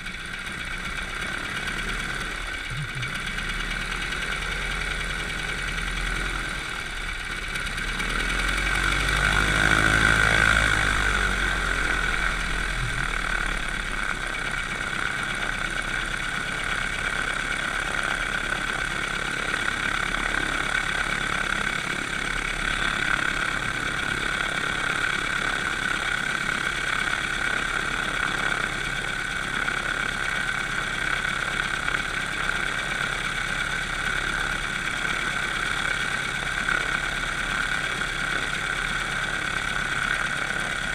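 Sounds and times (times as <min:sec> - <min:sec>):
light aircraft engine droning: 0:00.0 - 0:40.9.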